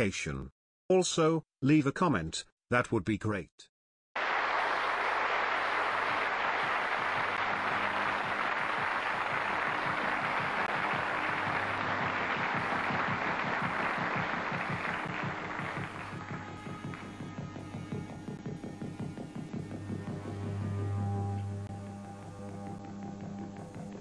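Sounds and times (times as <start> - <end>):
audience applauding: 4.2 - 20.6.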